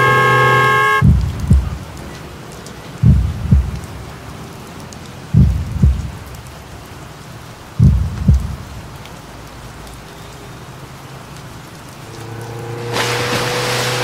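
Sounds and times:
rain hiss: 0.0 - 14.0
deep heartbeat thumping: 1.0 - 1.8, 3.0 - 3.9, 5.3 - 6.2, 7.8 - 8.7.

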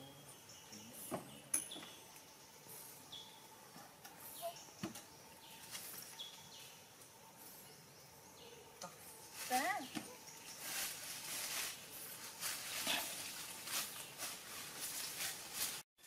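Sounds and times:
bird chirps: 0.0 - 10.9.

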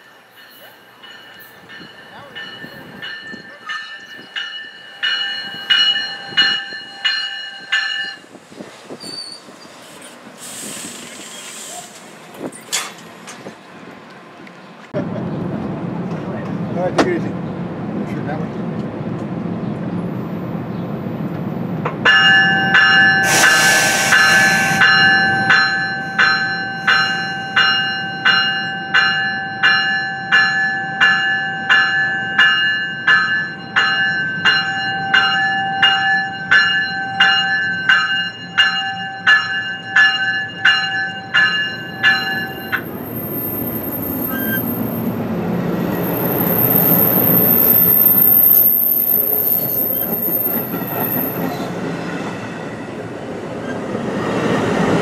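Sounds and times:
railroad warning bell ringing: 0.0 - 8.4, 22.0 - 51.7
train rumble: 0.0 - 55.0
high wheel squeal: 8.9 - 12.8, 23.1 - 27.7, 42.0 - 45.2, 45.8 - 51.7.

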